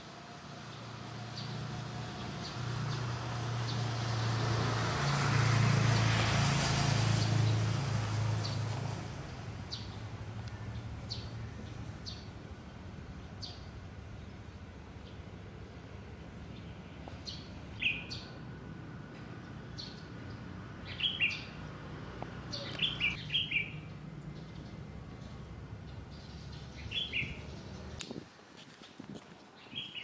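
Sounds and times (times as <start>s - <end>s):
vehicle passing: 0.2s - 28.0s
small birds chirping: 19.5s - 28.0s.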